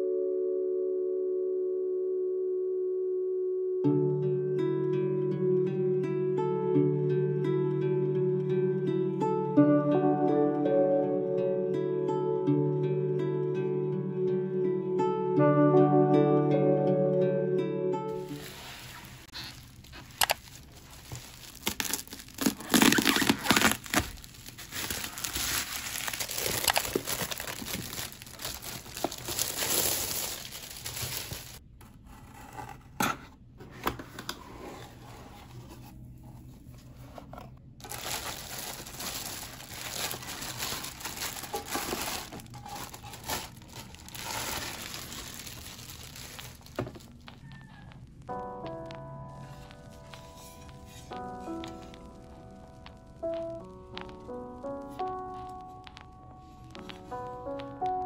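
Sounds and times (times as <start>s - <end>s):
plastic mailer crinkling and tearing: 18.2s - 31.6s, 37.8s - 47.4s
cardboard box being opened: 20.1s - 31.6s, 37.2s - 47.0s.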